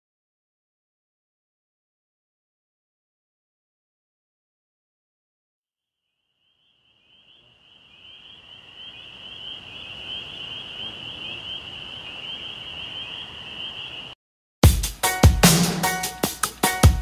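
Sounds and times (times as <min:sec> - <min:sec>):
insects trilling chorus: 0:06.2 - 0:14.2.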